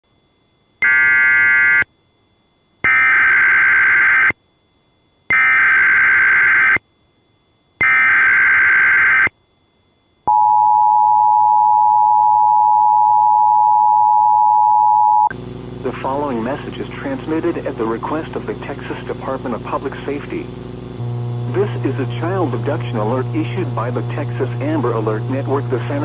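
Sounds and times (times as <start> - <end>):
rasping digital data bursts: 5.3 - 6.8, 7.8 - 9.3.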